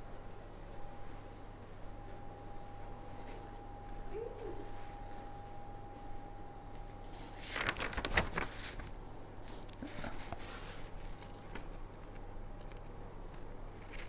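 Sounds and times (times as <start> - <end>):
low room hum: 0.0 - 14.0
faint high tone: 0.8 - 6.8
clicks and rustles: 7.5 - 14.0.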